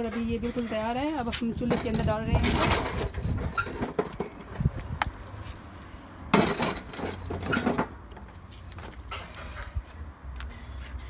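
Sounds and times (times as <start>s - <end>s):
charcoal scraping rattle: 0.0s - 4.6s, 6.4s - 8.0s.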